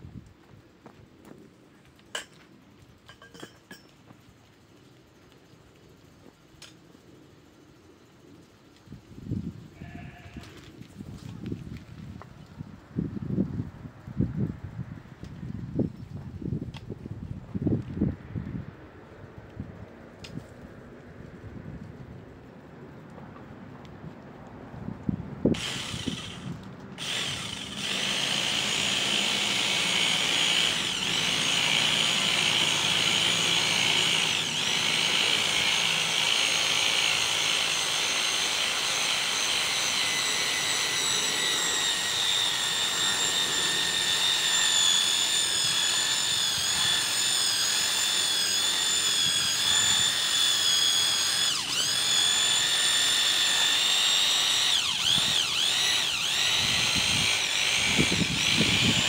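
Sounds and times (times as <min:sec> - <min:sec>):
electric power tool whining: 0:25.5 - 0:59.0.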